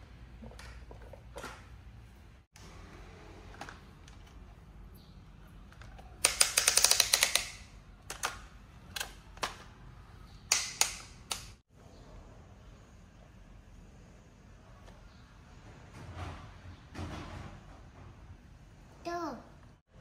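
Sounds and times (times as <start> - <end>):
plastic toy trucks clicking: 5.7 - 9.7.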